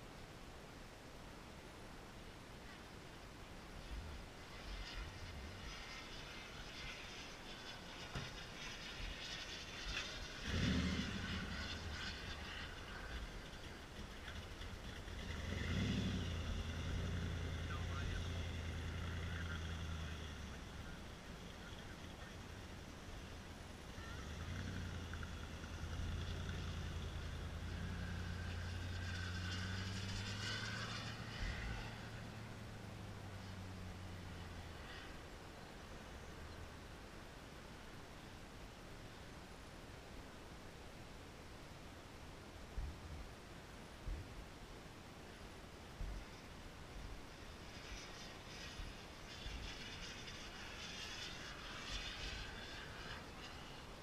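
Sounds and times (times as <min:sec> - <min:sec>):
high turbine whine: 0:00.0 - 0:40.2
model jet turbine rumble: 0:03.8 - 0:36.2.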